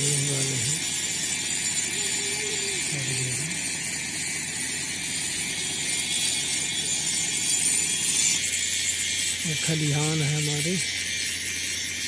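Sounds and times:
metal blade rasping scrape: 3.9s - 12.0s.

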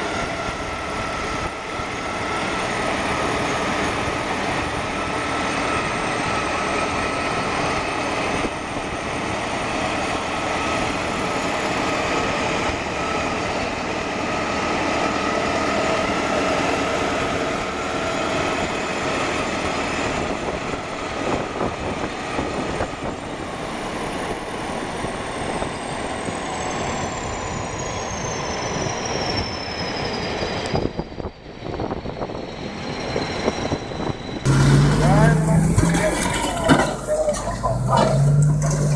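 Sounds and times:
bulldozer diesel engines: 0.0s - 38.9s
steel tracks clattering: 32.8s - 38.9s.

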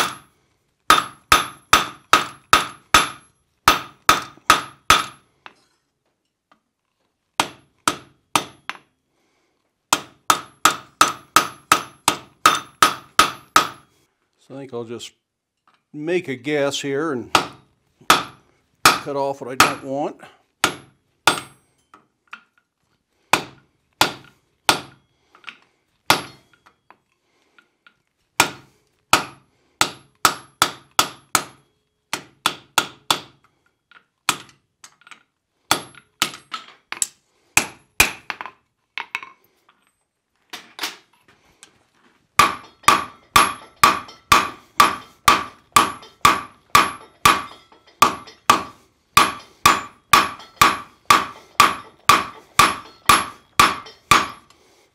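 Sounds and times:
hammer striking hot iron: 0.0s - 0.3s, 0.9s - 5.2s, 7.4s - 8.8s, 9.9s - 13.9s, 17.3s - 20.0s, 20.6s - 21.9s, 23.3s - 25.0s, 26.1s - 26.5s, 28.4s - 33.4s, 35.7s - 36.5s, 37.6s - 38.4s, 42.4s - 54.6s
hammer blows ringing off anvil: 42.4s - 54.5s.

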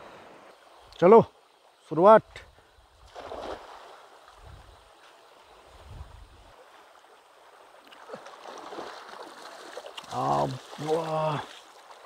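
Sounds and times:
river rushing: 6.5s - 12.0s.

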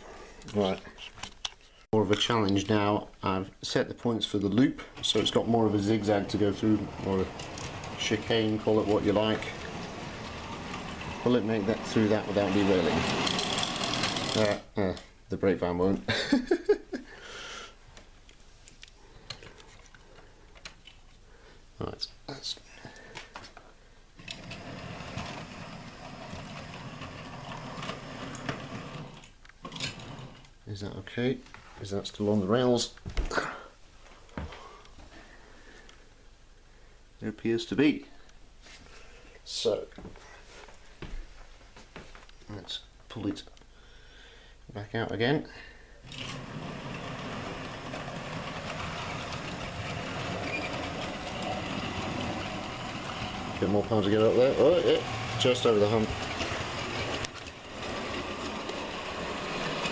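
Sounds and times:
wheels rattling over track: 5.0s - 14.6s, 46.1s - 59.9s
model train motor whirring: 6.3s - 14.6s, 46.1s - 59.9s.

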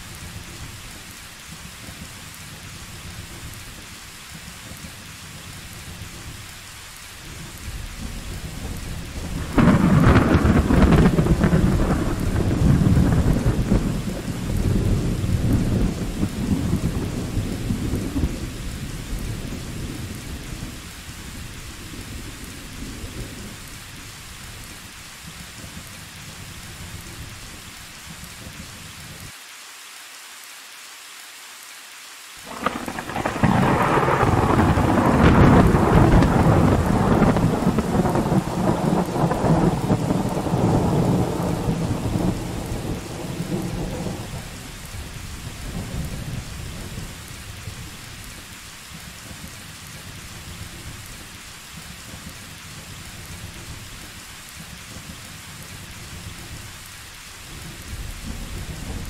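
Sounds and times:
steady rain hiss: 0.0s - 59.0s
rumble of thunder: 7.3s - 28.8s, 32.4s - 59.0s
loud thunder clap: 8.0s - 20.8s, 32.4s - 47.0s.

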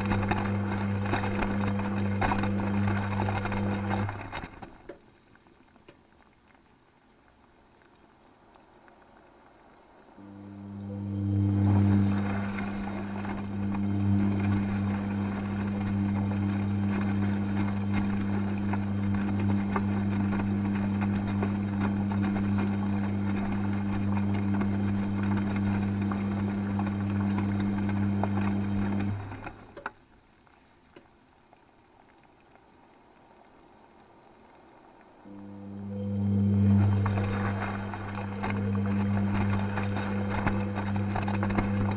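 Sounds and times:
washing machine motor hum: 0.0s - 5.0s, 10.2s - 29.8s, 35.3s - 41.9s
laundry and water sloshing: 0.0s - 10.4s, 11.3s - 41.9s.

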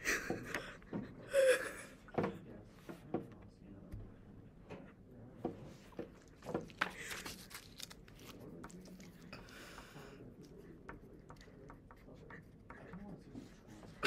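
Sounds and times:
paper card rustling: 6.2s - 9.2s.

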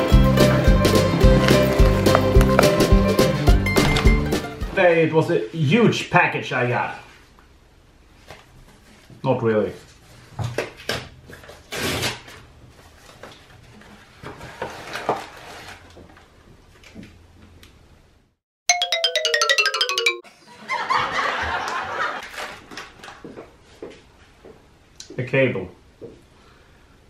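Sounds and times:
comic falling sound effect: 18.7s - 20.3s.

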